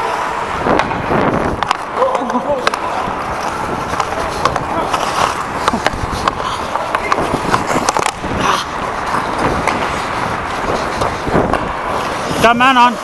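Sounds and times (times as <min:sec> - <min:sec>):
skate blades scraping on ice: 0:00.0 - 0:13.0
hockey stick clacking puck: 0:01.6 - 0:12.3.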